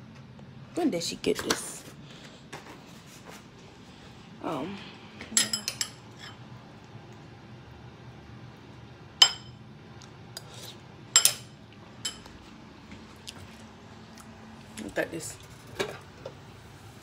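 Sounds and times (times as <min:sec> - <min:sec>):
metal kitchenware clinking: 0:05.4 - 0:06.4, 0:11.1 - 0:12.3.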